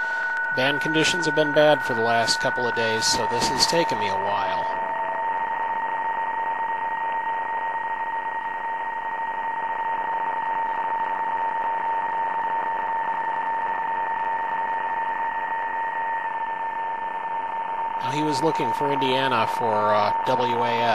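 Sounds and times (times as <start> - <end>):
radio band hiss: 0.0 - 4.8, 18.0 - 20.9
digital radio signal warbling: 0.0 - 5.0, 18.0 - 20.9
steady radio tone: 0.0 - 9.4, 18.0 - 20.9
faint higher tone: 0.0 - 20.9.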